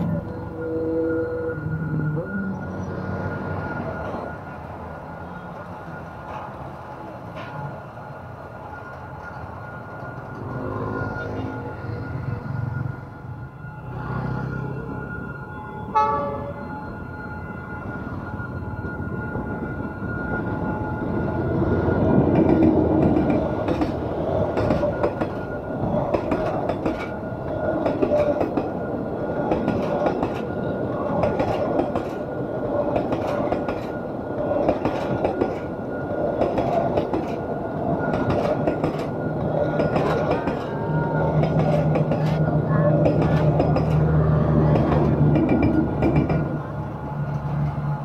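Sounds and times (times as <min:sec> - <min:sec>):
crossing warning signal tone: 0:00.0 - 0:48.0
locomotive engine hum: 0:00.0 - 0:48.0
train rumble: 0:00.0 - 0:48.0
train wheels clacking: 0:22.2 - 0:28.8, 0:29.4 - 0:46.6.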